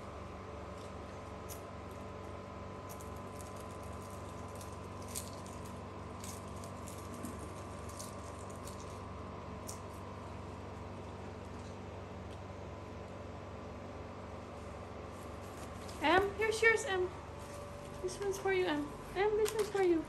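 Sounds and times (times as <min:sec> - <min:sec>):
steady hum: 0:00.0 - 0:20.0.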